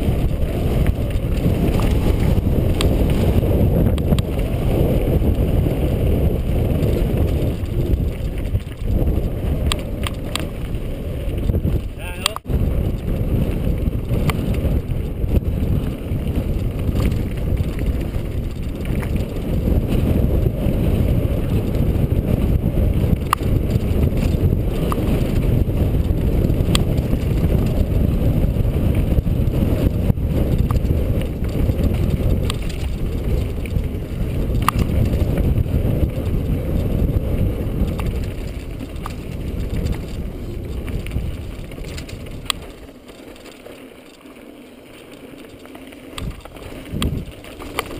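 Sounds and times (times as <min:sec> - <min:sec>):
wind on microphone: 0:00.0 - 0:43.5, 0:45.2 - 0:47.9
sharp clicks: 0:12.2 - 0:12.5.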